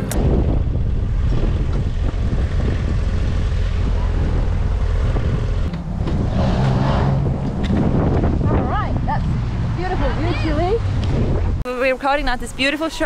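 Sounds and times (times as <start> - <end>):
motorcycle engine running: 0.0 - 6.2
wind rumbling on microphone: 0.0 - 13.0.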